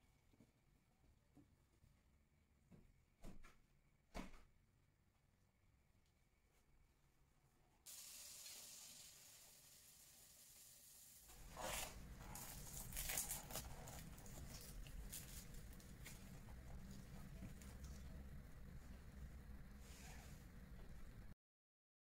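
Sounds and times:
faint steady hiss: 0:07.9 - 0:12.0
paper towel and glove rustling: 0:11.3 - 0:18.2.

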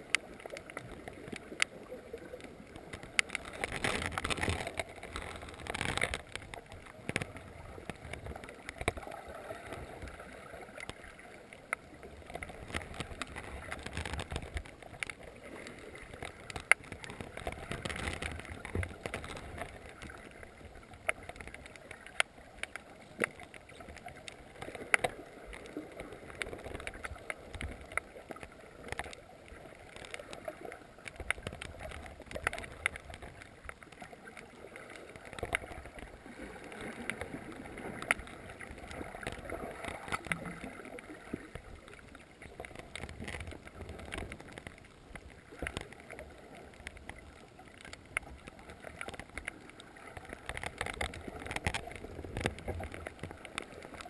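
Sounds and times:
low underwater water noise: 0:00.0 - 0:54.0
sharp clicks and crackles: 0:00.0 - 0:54.0.

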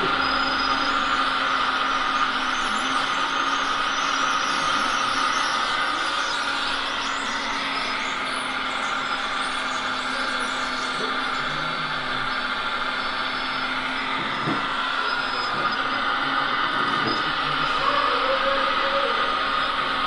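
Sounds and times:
model excavator whine and hum: 0:00.0 - 0:20.0.

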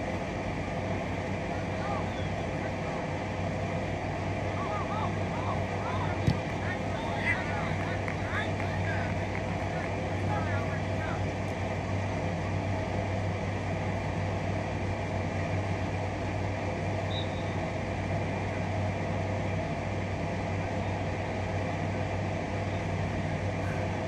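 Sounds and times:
low hum: 0:00.0 - 0:24.0.

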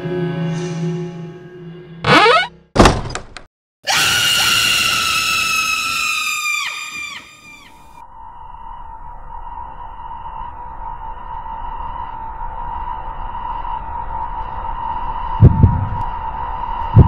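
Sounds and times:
woman screaming: 0:03.9 - 0:07.7.

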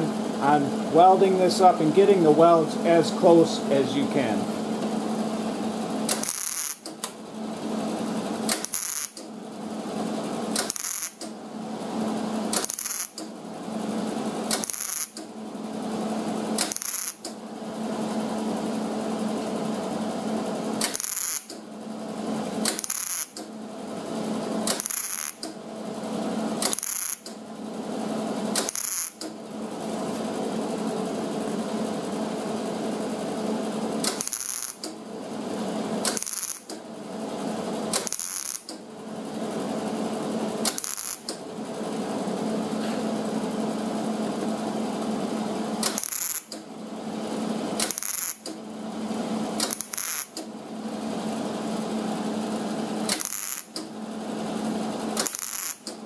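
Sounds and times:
welder crackling: 0:06.1 - 0:07.2, 0:08.5 - 0:09.3, 0:10.5 - 0:11.3, 0:12.5 - 0:13.3, 0:14.5 - 0:15.2, 0:16.6 - 0:17.3, 0:20.8 - 0:21.6, 0:22.6 - 0:23.4, 0:24.7 - 0:25.5, 0:26.6 - 0:27.3, 0:28.6 - 0:29.3, 0:34.0 - 0:34.9, 0:36.0 - 0:36.8, 0:37.9 - 0:38.8, 0:40.6 - 0:41.4, 0:45.8 - 0:46.6, 0:47.8 - 0:48.5, 0:49.6 - 0:50.4, 0:53.1 - 0:53.8, 0:55.2 - 0:56.0.

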